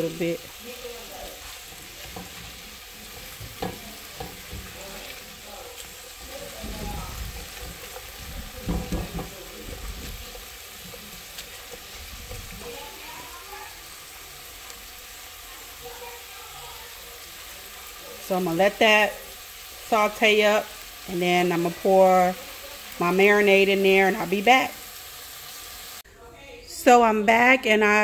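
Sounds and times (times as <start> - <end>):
onions sizzling in a pot: 0.0 - 26.1
spatula scraping a pot: 1.3 - 13.2.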